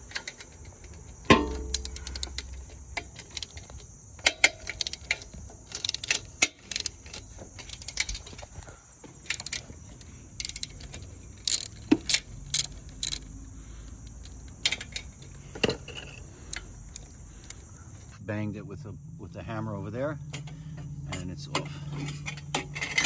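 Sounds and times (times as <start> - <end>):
metal tools clinking: 0.0 - 17.8, 20.3 - 23.0
ratchet clicking: 0.0 - 17.8.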